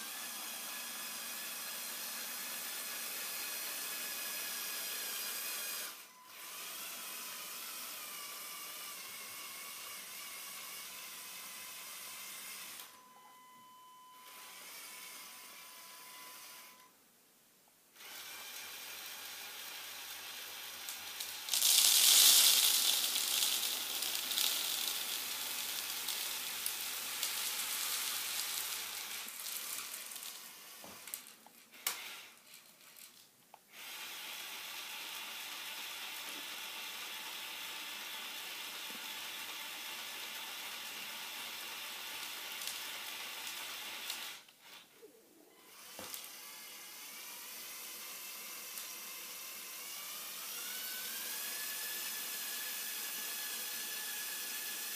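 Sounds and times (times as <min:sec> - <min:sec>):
toy truck electric motor whirring: 0:00.0 - 0:13.6, 0:14.2 - 0:16.9, 0:18.0 - 0:54.9
pellets pouring onto wooden floor: 0:21.2 - 0:31.4.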